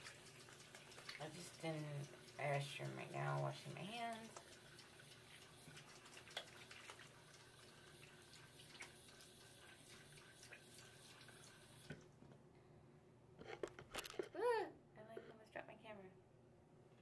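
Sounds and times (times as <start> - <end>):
small water splashes: 0.0 - 12.0
tap water running into sink: 0.0 - 12.1.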